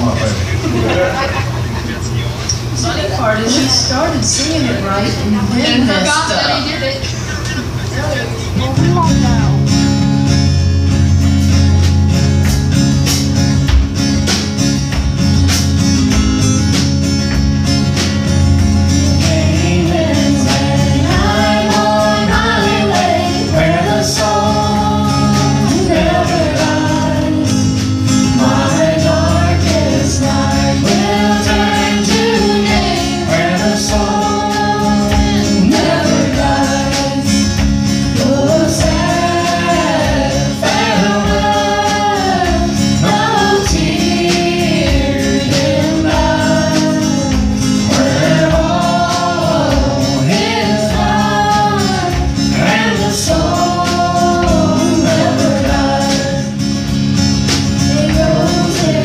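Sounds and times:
guitar: 0.0 - 59.0
drum kit steady beat: 3.4 - 59.0
people singing together: 18.2 - 59.0.

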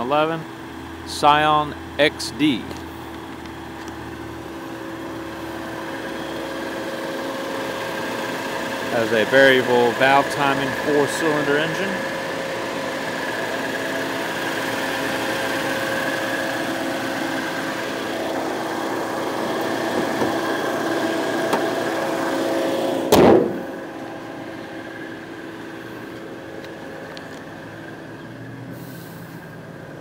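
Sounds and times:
car engine idling: 0.0 - 30.0
car hood slamming shut: 19.9 - 20.4, 23.1 - 23.7.

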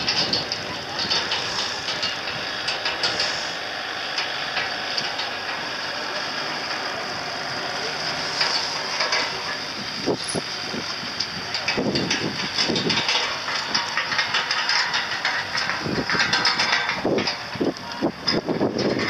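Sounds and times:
wind buffeting microphone: 0.0 - 3.8, 9.6 - 19.0
steady hiss: 0.1 - 12.6.

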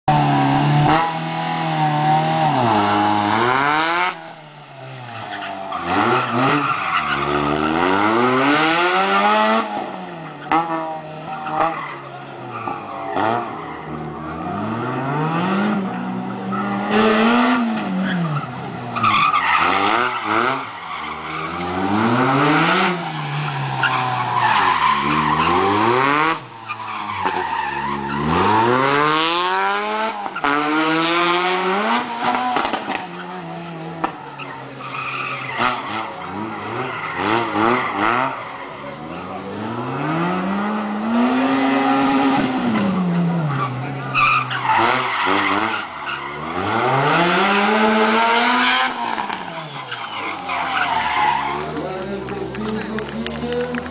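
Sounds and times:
car engine revving: 0.0 - 53.9
tyres squealing: 47.9 - 52.8.

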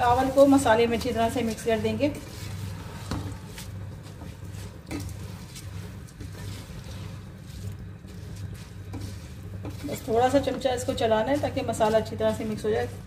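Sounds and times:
steady low hum: 0.0 - 13.0
spatula scraping rice in pot: 1.5 - 12.5.

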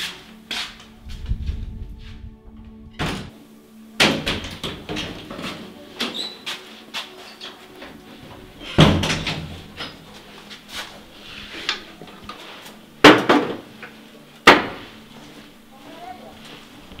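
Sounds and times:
wooden doors banging: 3.0 - 3.3, 4.0 - 6.4, 8.5 - 10.0, 13.0 - 13.8, 14.4 - 15.0.

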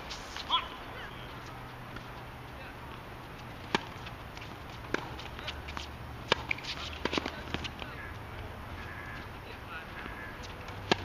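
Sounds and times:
tennis ball struck by rackets: 2.8 - 11.0
shoe scuffs on hard court: 3.7 - 7.9.

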